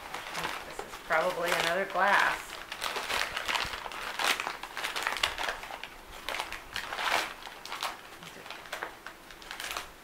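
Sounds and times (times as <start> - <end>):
newspaper crinkling and rustling: 0.0 - 10.0.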